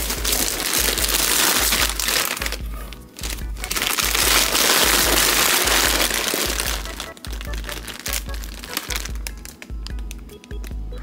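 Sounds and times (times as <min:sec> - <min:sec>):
chip bags crumpling and crackling: 0:00.0 - 0:10.7
background music with bass beat: 0:00.0 - 0:11.0.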